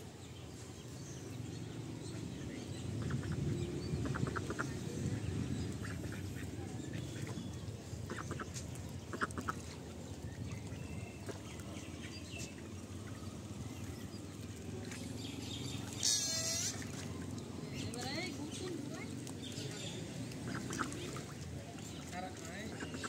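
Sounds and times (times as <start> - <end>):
ducks calling: 3.0 - 4.8, 5.8 - 7.4, 8.1 - 9.7, 15.8 - 17.2, 20.3 - 21.4.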